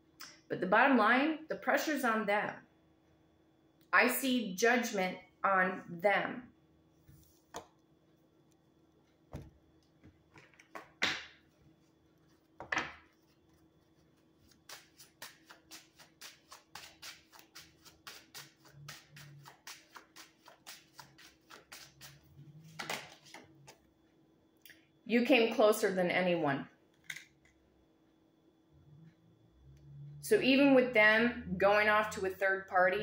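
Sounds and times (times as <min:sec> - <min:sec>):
cards being shuffled: 0:10.3 - 0:23.8.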